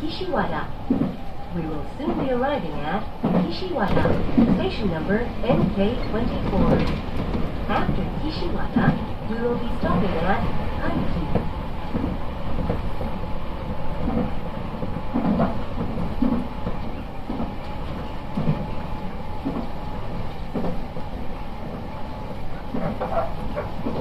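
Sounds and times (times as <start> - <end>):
train wheels rumbling on rail: 0.0 - 24.0.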